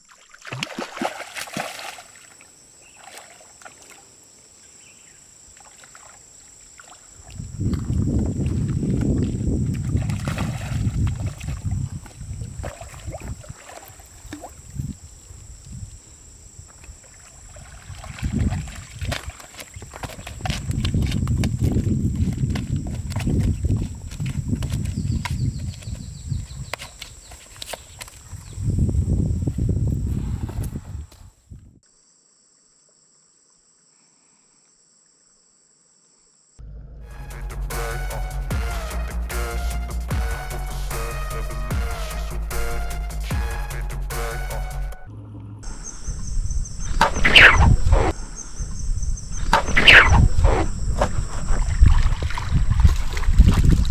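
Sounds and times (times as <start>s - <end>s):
fish thrashing and splashing: 0.0s - 2.3s, 8.5s - 11.8s, 17.2s - 21.1s
insects chirping drone: 1.0s - 30.2s, 45.6s - 52.6s.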